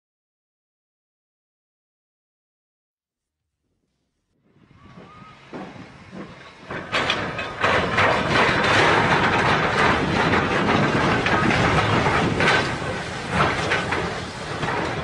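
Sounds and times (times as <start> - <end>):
steam locomotive passing: 4.4 - 15.0.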